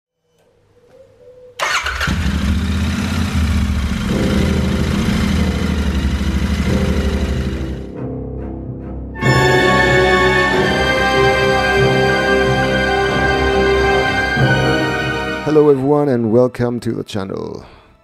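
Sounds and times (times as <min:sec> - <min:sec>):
motorcycle engine starting and running: 0:01.6 - 0:07.9.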